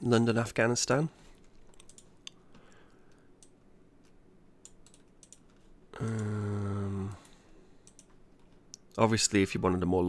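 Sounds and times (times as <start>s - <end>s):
keyboard and mouse clicks: 1.4s - 2.5s, 3.1s - 6.3s, 7.1s - 8.9s.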